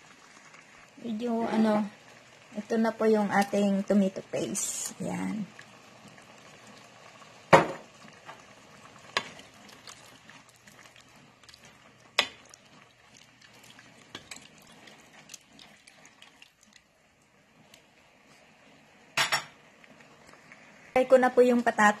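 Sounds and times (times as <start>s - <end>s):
sauce bubbling faintly: 0.0s - 21.1s
spoon stirring thick sauce: 9.1s - 16.8s.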